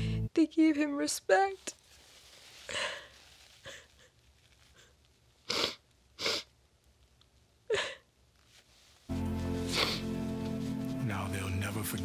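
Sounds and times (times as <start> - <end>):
woman sniffling while crying: 4.7 - 6.5, 7.7 - 8.1, 9.5 - 10.2.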